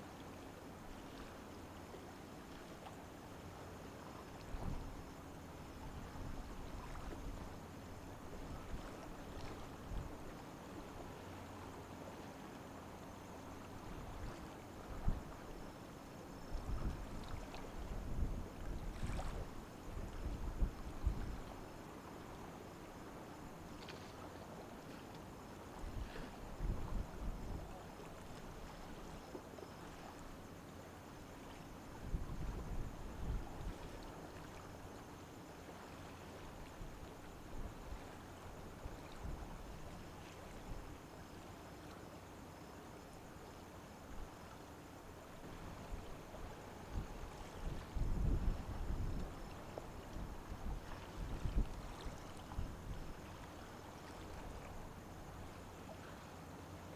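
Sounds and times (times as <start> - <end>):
wind buffeting microphone: 16.5 - 21.5, 25.8 - 27.8, 46.9 - 49.4, 50.1 - 53.1.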